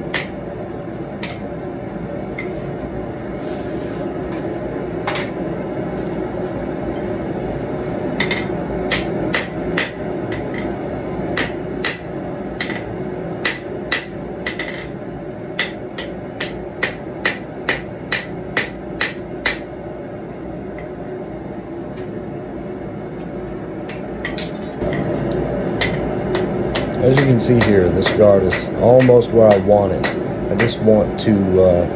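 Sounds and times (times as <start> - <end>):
hammer striking steel on anvil: 0.0 - 0.4, 8.2 - 10.6, 11.4 - 14.9, 15.6 - 19.7, 25.8 - 30.9
gas forge burner rushing: 21.9 - 31.9.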